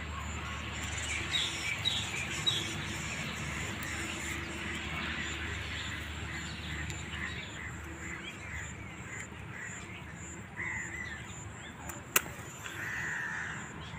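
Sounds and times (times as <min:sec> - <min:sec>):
birds calling: 0:00.0 - 0:13.9
sharp click: 0:11.8 - 0:12.8.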